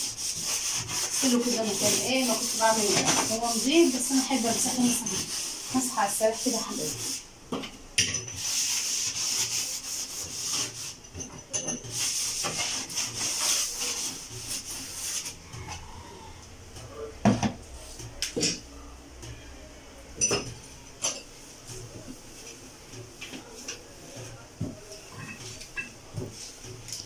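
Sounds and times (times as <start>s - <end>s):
steel wool scrubbing metal: 0.0s - 7.3s, 8.3s - 15.6s.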